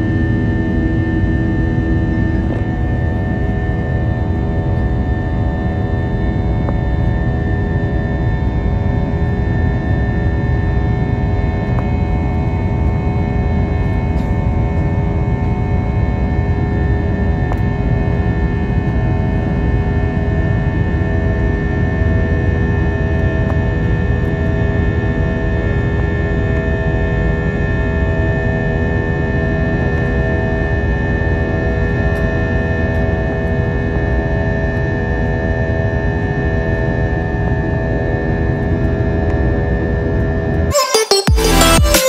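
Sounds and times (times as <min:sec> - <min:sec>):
aircraft cabin roar: 0:00.0 - 0:31.0.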